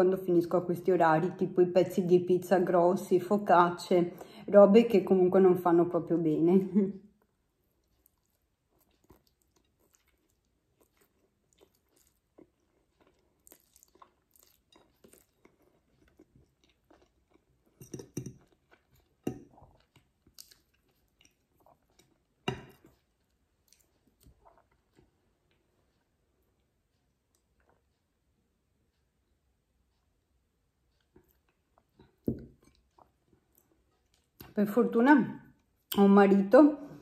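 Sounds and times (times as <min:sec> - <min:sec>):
person chewing: 0:07.2 - 0:28.2, 0:30.9 - 0:34.6.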